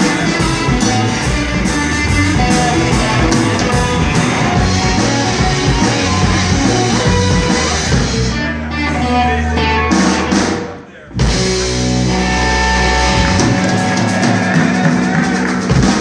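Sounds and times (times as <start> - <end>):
drum kit: 0.0 - 16.0
electric guitars: 0.0 - 16.0.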